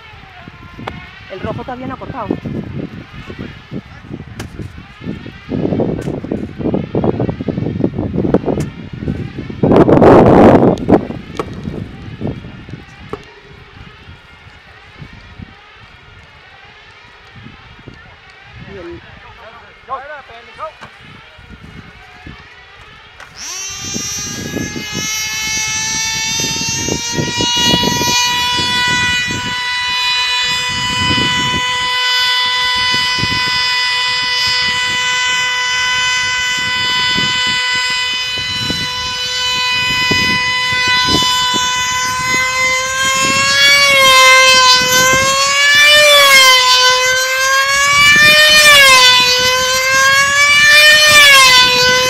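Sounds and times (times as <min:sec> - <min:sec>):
model aircraft engines whining: 0:00.0 - 0:52.0.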